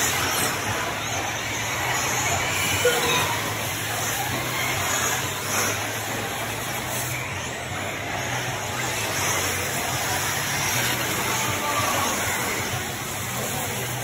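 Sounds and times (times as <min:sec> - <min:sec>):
electric rc cars racing: 0:00.0 - 0:14.0.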